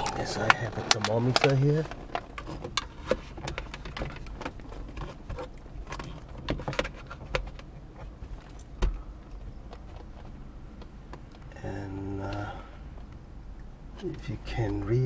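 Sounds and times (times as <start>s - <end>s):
handling clicks and taps: 0.0s - 11.5s.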